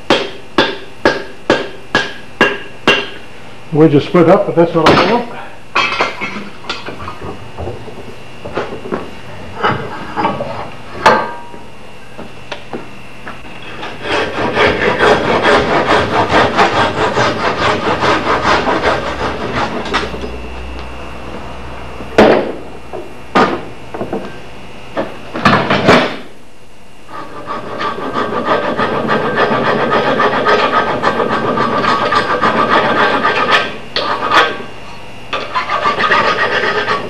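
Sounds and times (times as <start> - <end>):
hand file rasping wood: 13.6 - 20.1, 27.1 - 34.6, 35.4 - 37.0.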